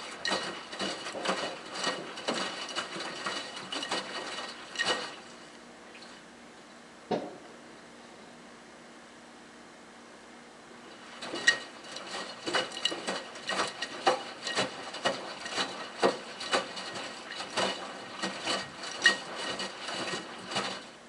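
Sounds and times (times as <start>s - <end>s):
washing machine drum tumbling: 0.0s - 5.4s, 10.9s - 21.0s.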